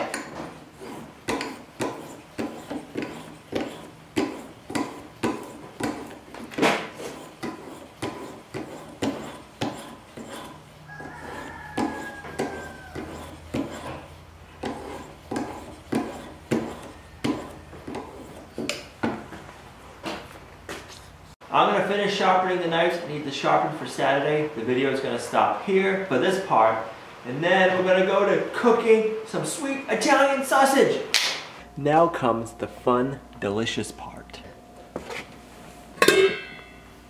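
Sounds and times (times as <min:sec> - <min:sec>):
whetstone rubbing on knife edge: 0:00.0 - 0:18.9.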